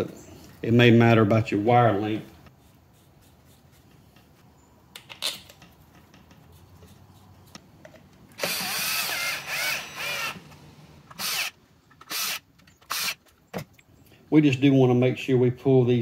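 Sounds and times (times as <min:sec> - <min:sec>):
cordless drill driving a screw: 0:08.4 - 0:10.5, 0:11.1 - 0:13.2.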